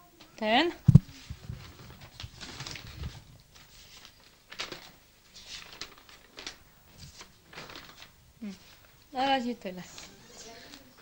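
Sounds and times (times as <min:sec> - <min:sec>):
notebook pages turning: 0:01.6 - 0:08.1.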